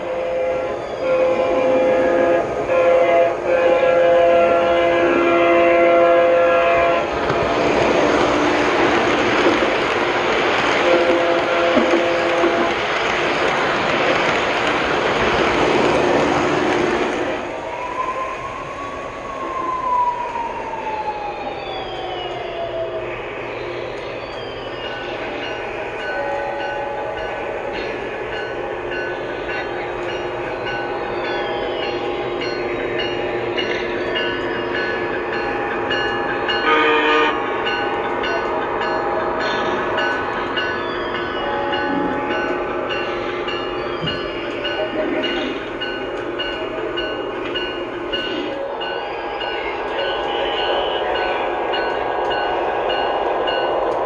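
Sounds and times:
train horn blast: 0:00.0 - 0:09.1, 0:10.7 - 0:13.1, 0:15.4 - 0:17.5, 0:25.4 - 0:32.5, 0:35.6 - 0:38.4, 0:41.4 - 0:43.1, 0:48.5 - 0:53.6
electric train running sounds: 0:00.0 - 0:54.0
model train wheels rumbling: 0:01.2 - 0:17.6.

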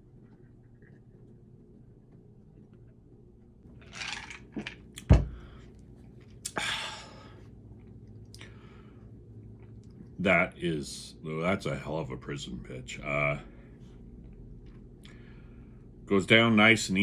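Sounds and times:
man exhaling: 0:06.4 - 0:07.4.

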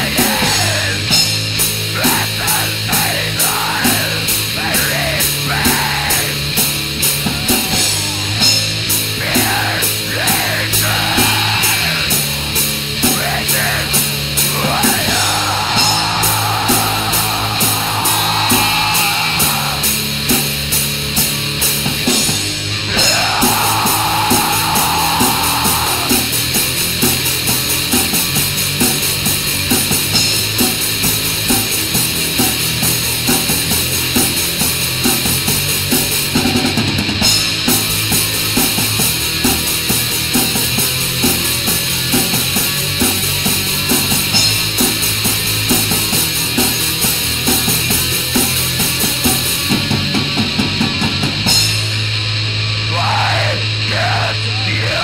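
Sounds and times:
harsh vocals: 0:00.0 - 0:20.6, 0:22.7 - 0:27.0, 0:52.8 - 0:55.0
fast drumming: 0:00.0 - 0:52.0
distorted guitars: 0:00.0 - 0:55.0.

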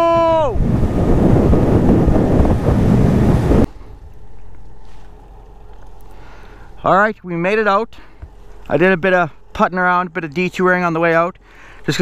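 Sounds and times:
wind blasting microphone: 0:00.0 - 0:04.1
rushing water: 0:00.0 - 0:06.8
faint steady background: 0:03.6 - 0:12.0.

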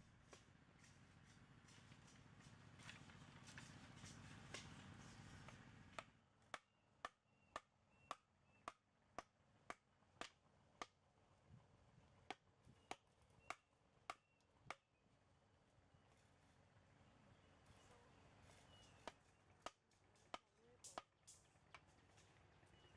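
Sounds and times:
bamboo mallet knocking on bamboo: 0:06.0 - 0:11.0.

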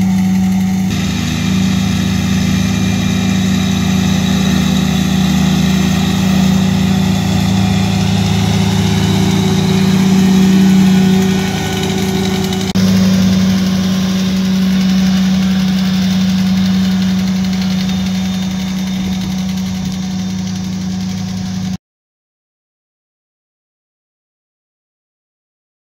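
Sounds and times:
blower whine: 0:00.0 - 0:21.8
tractor diesel engine hum: 0:00.0 - 0:21.8.

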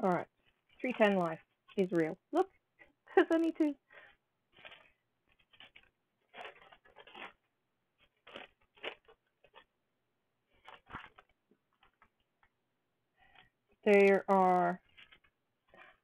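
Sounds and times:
plastic bags crinkling: 0:04.5 - 0:09.7, 0:10.5 - 0:12.2, 0:14.8 - 0:16.0.

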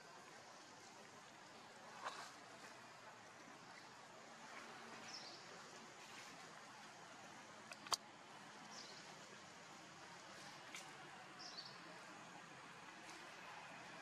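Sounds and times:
faint outdoor background noise: 0:00.0 - 0:14.0
sharp click: 0:07.7 - 0:08.0.

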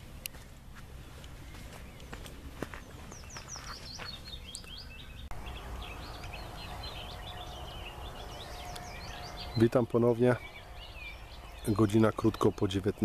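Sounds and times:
low outdoor rumble: 0:00.0 - 0:13.0
songbirds chirping and singing: 0:00.0 - 0:13.0.

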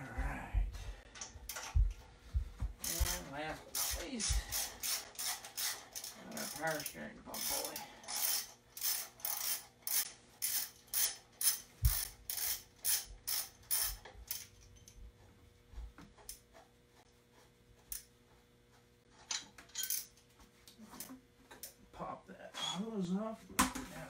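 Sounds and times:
ratchet wrench clicking: 0:02.8 - 0:14.9.

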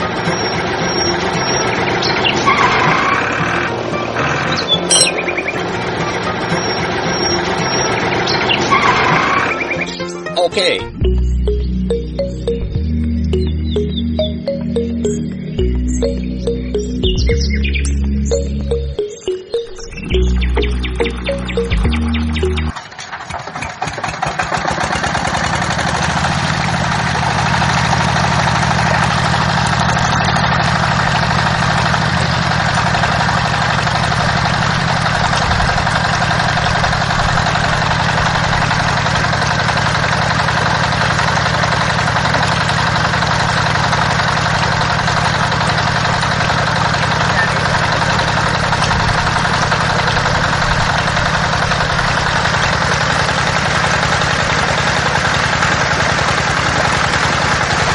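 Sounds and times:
small water pump motor humming: 0:20.1 - 0:57.9.

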